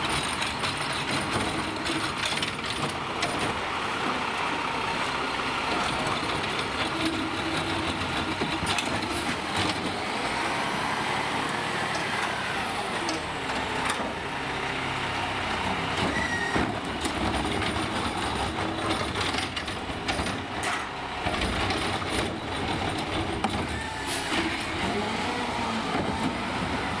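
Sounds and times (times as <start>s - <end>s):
knocks and clanks: 0.0s - 4.2s, 5.7s - 10.0s, 15.9s - 25.1s, 25.8s - 26.9s
garbage truck running: 0.0s - 27.0s
brief squeal: 16.1s - 16.6s, 23.8s - 24.5s.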